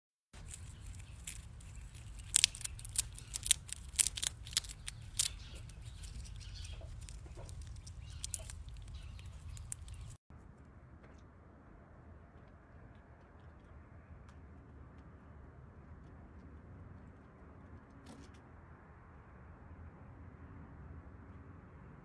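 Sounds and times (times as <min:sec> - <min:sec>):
squirrel gnawing and crunching food: 0:00.3 - 0:10.2.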